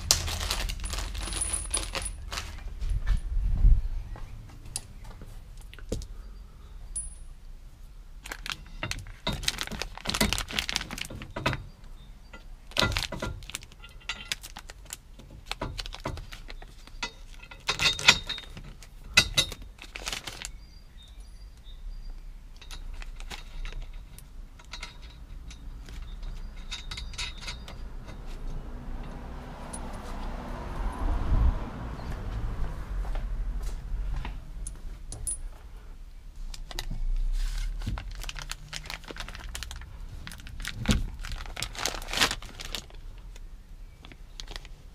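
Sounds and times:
metal bolts clinking together: 0:00.0 - 0:02.3, 0:12.3 - 0:14.5, 0:16.8 - 0:19.7, 0:22.6 - 0:30.0, 0:34.6 - 0:35.5
rustling rumble: 0:00.0 - 0:06.2, 0:22.5 - 0:44.9.

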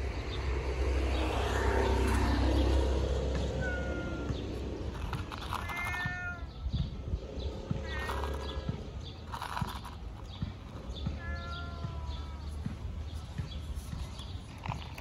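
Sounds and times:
cat meowing: 0:03.6 - 0:04.4, 0:05.6 - 0:06.6, 0:07.8 - 0:08.8, 0:11.0 - 0:12.4.

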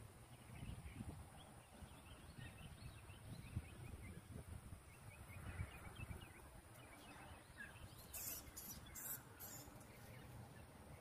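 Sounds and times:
small high chirps: 0:07.9 - 0:09.9.

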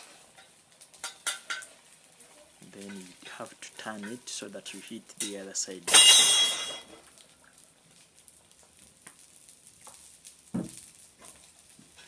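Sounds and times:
omelette sizzling in frying pan: 0:00.0 - 0:12.0
low thump: 0:10.6 - 0:10.8.

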